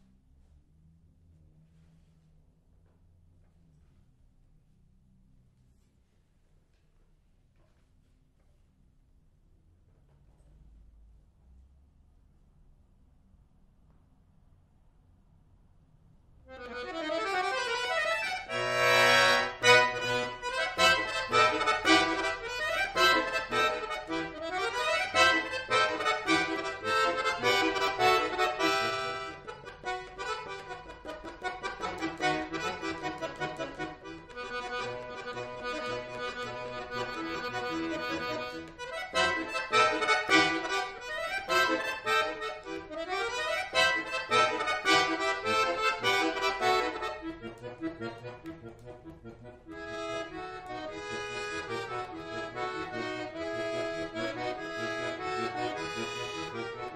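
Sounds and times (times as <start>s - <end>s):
button accordion playing: 16.5s - 56.9s.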